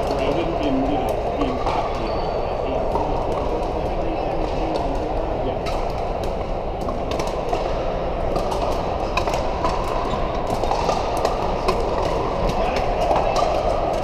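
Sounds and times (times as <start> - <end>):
din of indoor hall: 0.0 - 14.0
paddles hitting plastic balls: 2.8 - 14.0.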